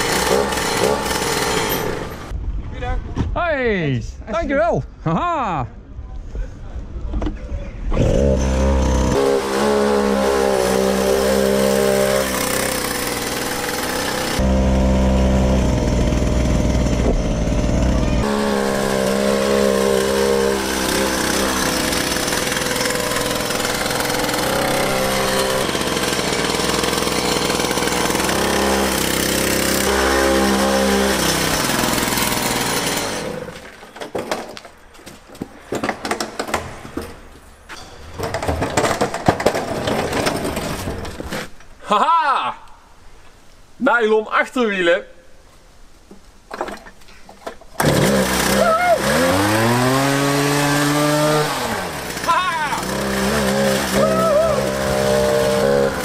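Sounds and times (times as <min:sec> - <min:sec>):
two-stroke engine running hard: 0:00.0 - 0:01.8, 0:08.3 - 0:33.2, 0:47.9 - 0:56.0.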